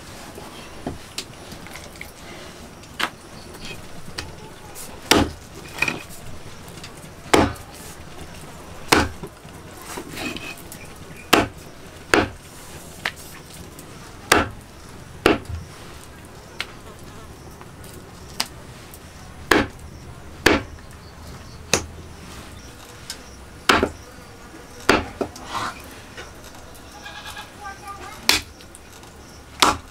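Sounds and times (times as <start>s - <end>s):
knife chopping on wooden block: 5.1s - 5.4s, 7.3s - 7.6s, 8.9s - 9.2s, 11.3s - 11.5s, 12.1s - 12.4s, 14.3s - 14.6s, 15.2s - 15.5s, 19.5s - 19.8s, 20.4s - 20.7s, 23.7s - 24.0s, 24.9s - 25.3s, 29.6s - 29.9s.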